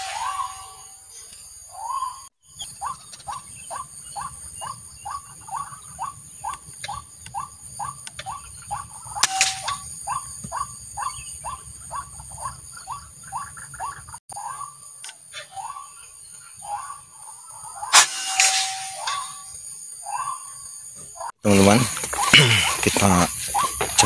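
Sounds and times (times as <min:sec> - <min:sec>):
bird calling short rising notes: 0:00.0 - 0:01.0
sharp crack: 0:09.2 - 0:09.8, 0:17.9 - 0:19.6.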